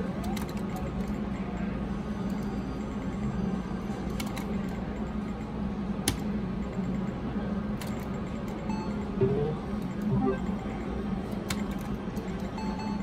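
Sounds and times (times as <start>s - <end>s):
video poker machine clicks: 9.2s - 10.4s.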